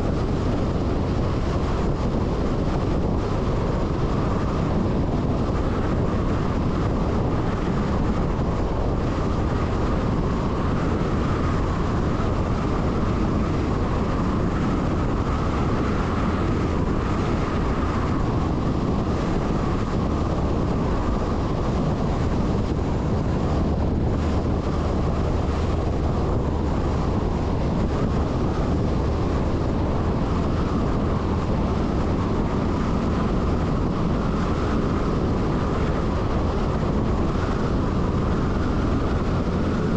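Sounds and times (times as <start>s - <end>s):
truck diesel engine: 0.0s - 39.9s
wind buffeting microphone: 0.0s - 39.9s.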